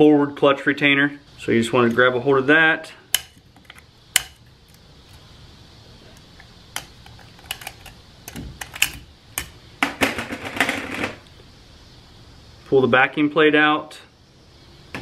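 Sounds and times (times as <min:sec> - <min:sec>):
screwdriver clicking and scraping metal: 0:03.2 - 0:04.4, 0:06.2 - 0:09.6.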